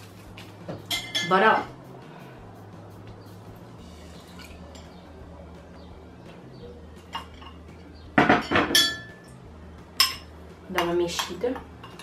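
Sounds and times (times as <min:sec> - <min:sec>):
glass and spoon clinking: 0:00.9 - 0:01.4, 0:07.0 - 0:07.6, 0:08.2 - 0:09.4, 0:10.0 - 0:12.0.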